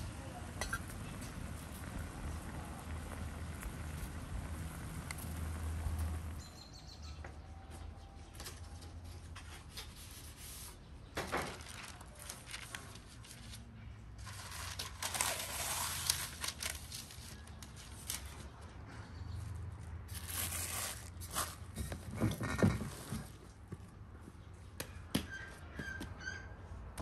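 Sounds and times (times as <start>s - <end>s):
pot boiling hard: 0.0s - 6.4s
baking paper crinkling: 8.4s - 18.8s, 20.1s - 21.8s.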